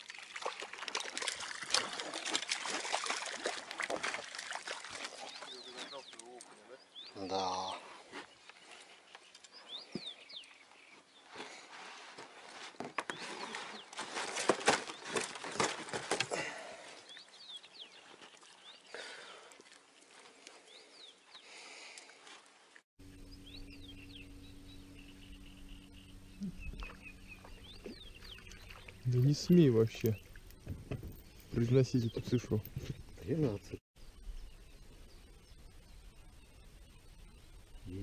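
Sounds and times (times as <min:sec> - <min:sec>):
small birds chirping: 0:04.8 - 0:11.8, 0:16.8 - 0:22.2, 0:23.0 - 0:38.0
low steady hum: 0:23.0 - 0:31.3
rustling and knocks: 0:30.6 - 0:31.3.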